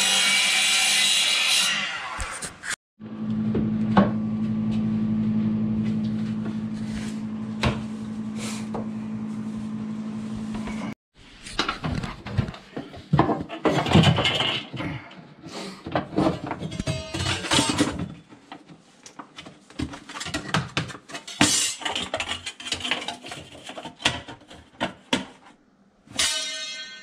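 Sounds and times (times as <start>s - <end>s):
low machine hum: 3.0s - 10.9s
laminate planks knocking and clattering: 11.6s - 15.0s.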